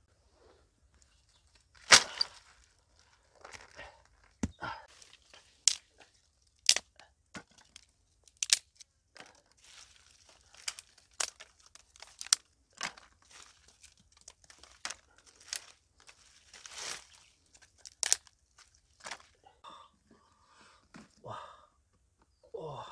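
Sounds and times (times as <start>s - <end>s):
twigs rustling: 0.9s - 19.5s
sticks clattering on ground: 1.8s - 2.5s, 3.4s - 19.4s.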